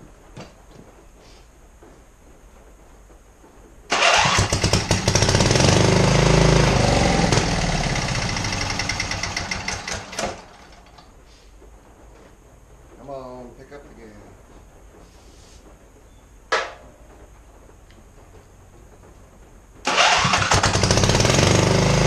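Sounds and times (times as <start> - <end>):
engine running roughly: 3.9 - 11.0, 19.9 - 22.0.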